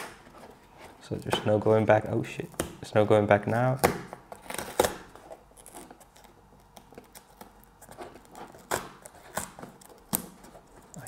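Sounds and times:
cardboard tearing: 4.3 - 11.0.

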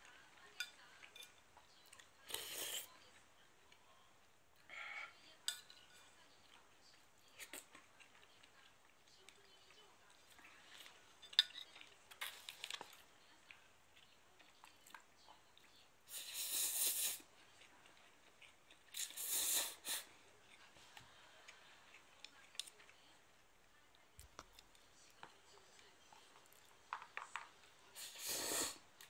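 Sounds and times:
loud noodle slurping: 28.0 - 28.8.

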